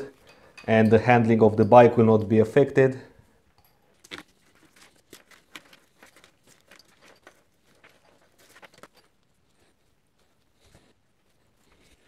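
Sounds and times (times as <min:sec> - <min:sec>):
clicks and rustles of cables: 0:03.9 - 0:09.4.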